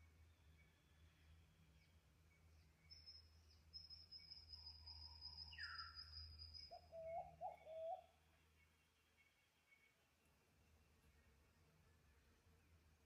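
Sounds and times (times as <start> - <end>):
low wavering cooing: 6.7 - 8.1.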